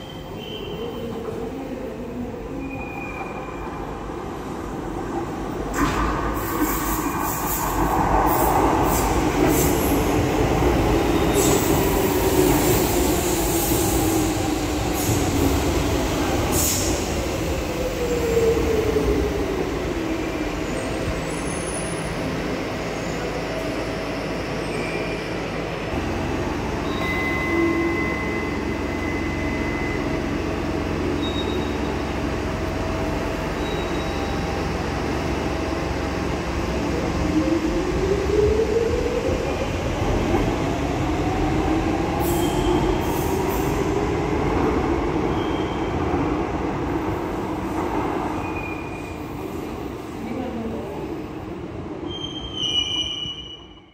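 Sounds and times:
train brakes squealing: 0.0 - 1.1, 24.6 - 25.4, 26.7 - 30.4, 31.1 - 32.0, 33.5 - 34.6, 42.2 - 43.8, 45.3 - 46.0, 48.4 - 49.4, 52.0 - 53.9.

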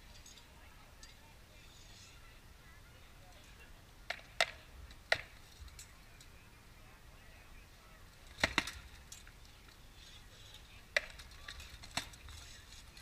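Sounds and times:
rattan weapons striking shields: 8.3 - 8.9.

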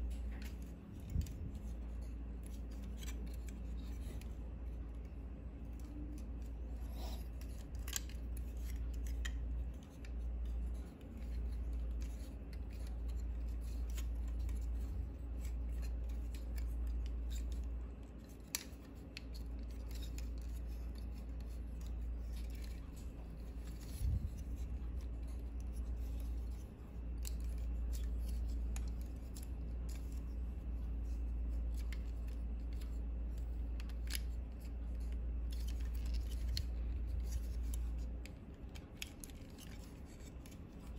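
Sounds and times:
plastic toy parts clicking: 5.6 - 30.2, 33.7 - 40.9.

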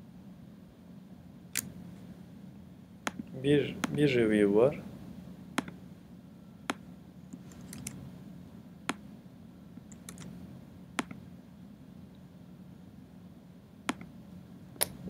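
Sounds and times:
faint room hum: 0.0 - 15.0
computer mouse clicking: 5.6 - 5.8, 6.7 - 8.0, 9.8 - 10.3, 11.0 - 11.2.

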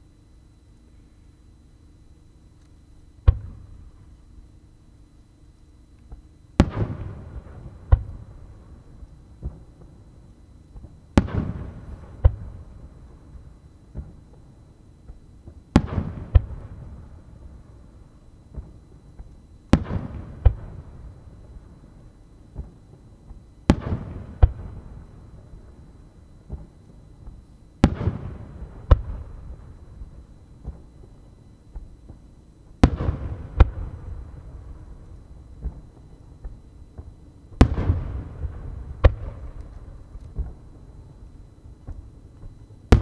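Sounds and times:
firework shells booming: 6.6 - 8.2, 10.8 - 12.6, 26.5 - 29.5, 35.6 - 40.8.

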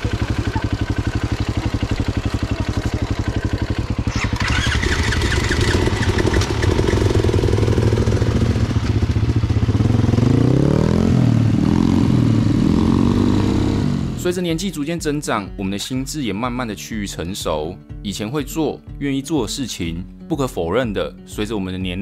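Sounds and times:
dirt bike engines revving: 0.0 - 14.2.

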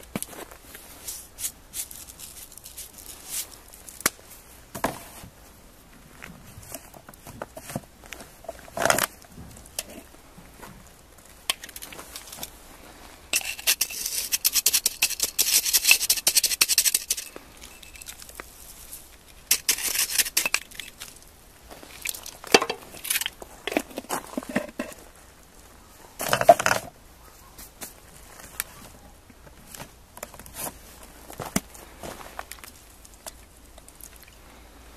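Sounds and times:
sugar sprinkling rustle: 0.3 - 4.0
containers and utensils clicking: 13.4 - 18.3, 19.5 - 21.0, 22.0 - 25.0.

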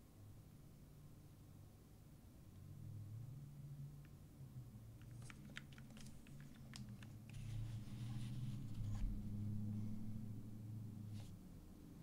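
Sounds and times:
low steady hum: 0.0 - 12.0
keyboard clicks and taps: 5.0 - 7.4.

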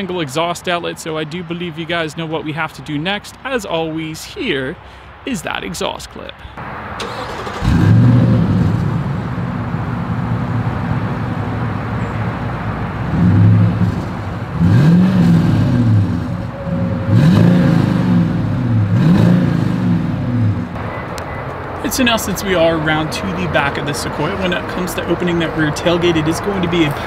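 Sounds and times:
engine idling and revving: 6.6 - 21.4.

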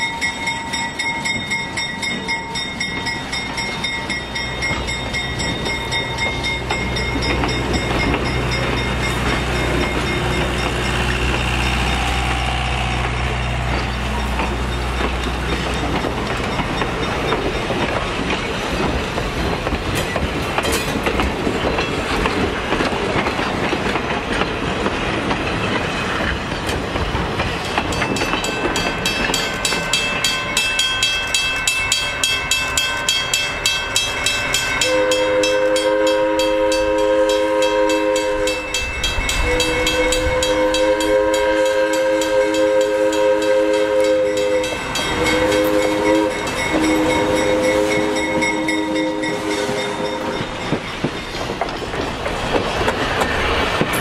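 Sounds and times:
crossing bell ringing: 0.0 - 19.2, 27.4 - 52.3
train wheels on rails: 0.0 - 54.0
locomotive air horn blasts: 34.8 - 50.6.

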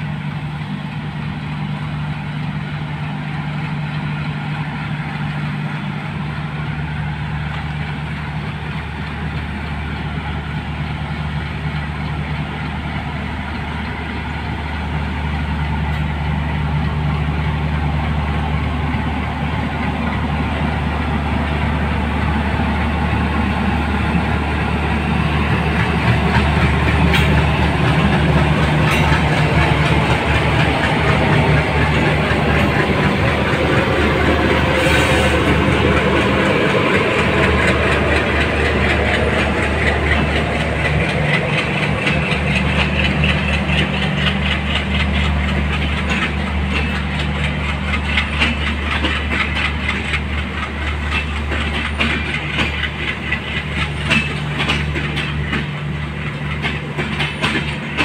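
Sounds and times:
wheels clattering over rail joints: 25.3 - 58.0.

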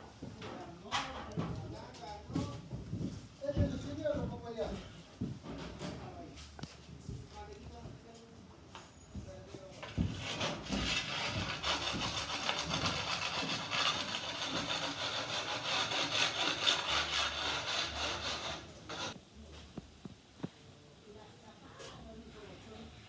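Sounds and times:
hand saw cutting plastic conduit: 10.1 - 19.2.

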